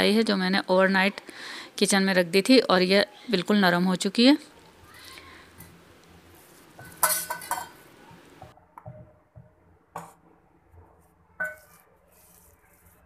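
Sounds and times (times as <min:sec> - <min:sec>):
steel bowls clinking and ringing: 0:11.4 - 0:11.8.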